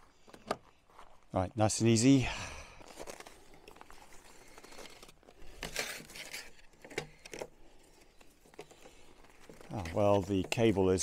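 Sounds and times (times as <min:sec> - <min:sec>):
cable rustling and crinkling: 0:02.8 - 0:11.0.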